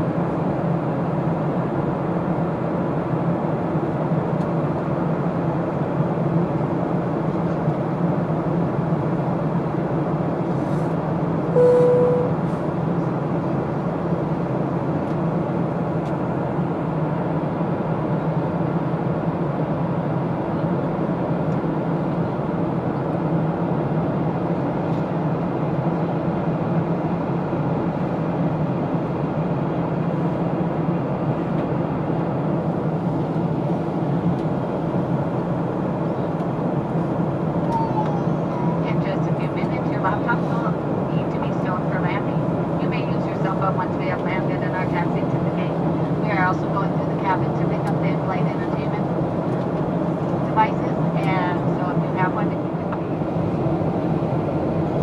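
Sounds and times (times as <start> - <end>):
airplane cabin engine rumble: 0.0 - 55.0
short tone: 11.5 - 12.4.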